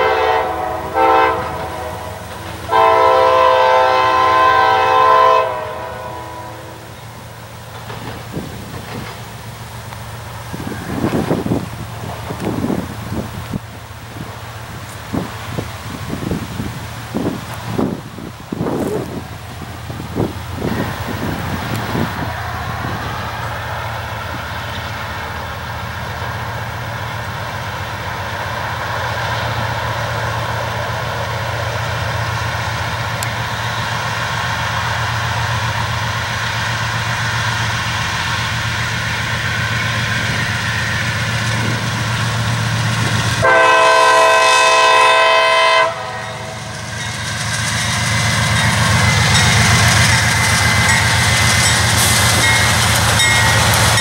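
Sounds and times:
train air horn blast: 0:00.0 - 0:07.0, 0:43.3 - 0:46.9
diesel locomotives droning: 0:00.0 - 0:54.0.

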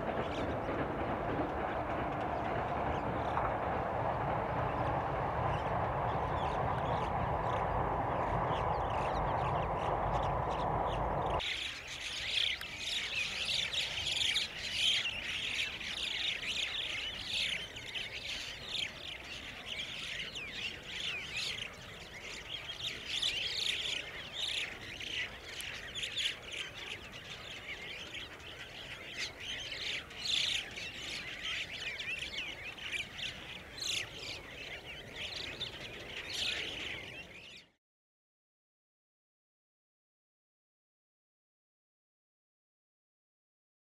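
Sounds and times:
steady low rumble: 0:00.0 - 0:11.4
birds calling and chattering: 0:00.0 - 0:37.8.

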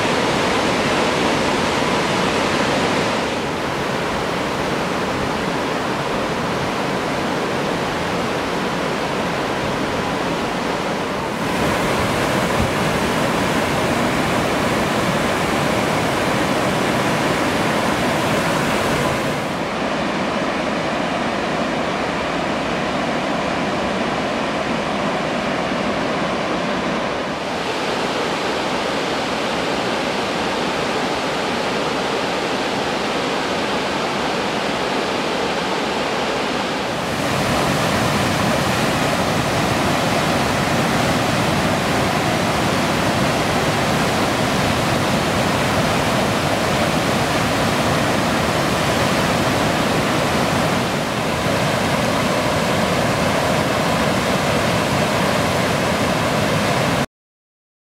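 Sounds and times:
waterfall roaring: 0:00.0 - 0:57.0.

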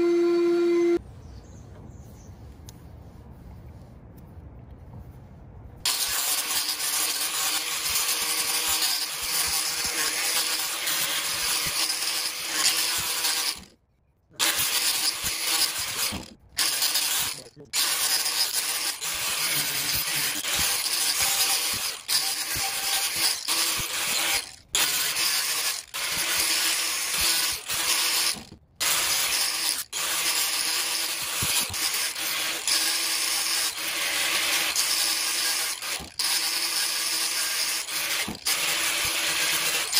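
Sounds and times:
angle grinder motor whine: 0:00.0 - 0:01.0.

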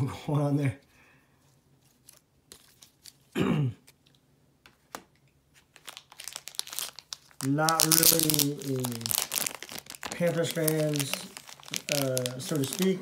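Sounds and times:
person clearing throat: 0:03.3 - 0:03.9.

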